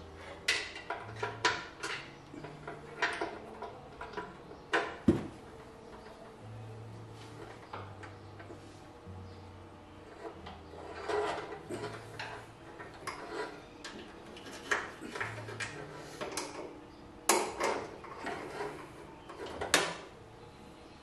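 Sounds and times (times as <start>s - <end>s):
metallic clicks and clanks: 0.4s - 5.1s, 10.1s - 20.1s.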